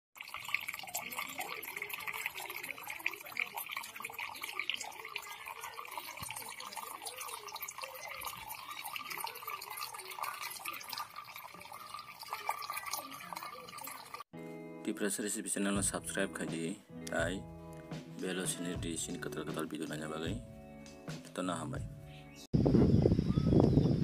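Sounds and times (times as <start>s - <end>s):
liquid trickling into metal bowl: 0.2s - 14.3s
small splashing drips: 0.2s - 14.3s.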